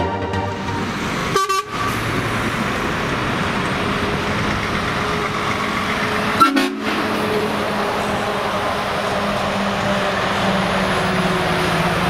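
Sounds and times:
road traffic noise: 0.0s - 12.0s
truck approaching: 0.0s - 12.0s.

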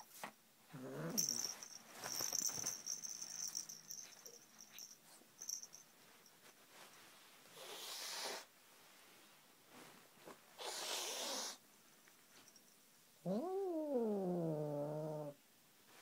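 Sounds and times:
kitten growling: 0.7s - 1.5s, 13.2s - 15.4s
kitten hissing: 10.6s - 11.6s.

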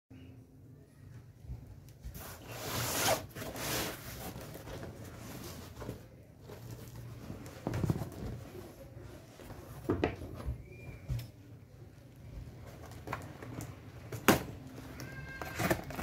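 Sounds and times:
cardboard box scraping and rustling: 2.2s - 6.9s.

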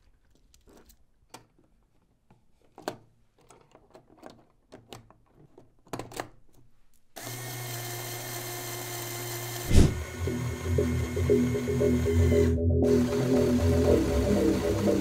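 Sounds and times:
plastic parts clicking: 0.0s - 7.1s
toy motor whirring: 7.2s - 9.8s.

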